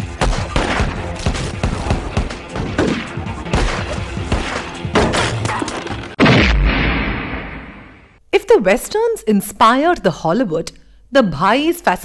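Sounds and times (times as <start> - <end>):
dramatic background music: 0.0 - 6.2
gunshots: 0.0 - 8.2.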